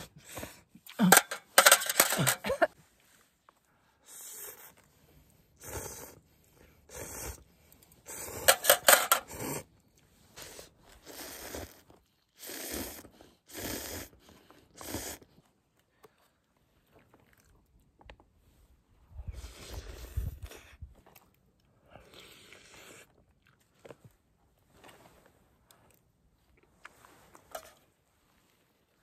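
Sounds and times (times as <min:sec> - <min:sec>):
spoon scraping in crinkly pouch: 0:01.0 - 0:02.6, 0:08.4 - 0:09.4
eating sounds: 0:04.4 - 0:16.2.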